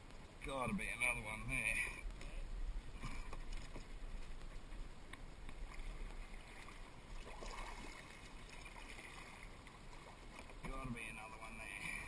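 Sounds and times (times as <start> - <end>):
kayak paddle dipping into water: 3.0 - 10.9
water drips and splashes on hull: 3.0 - 12.0.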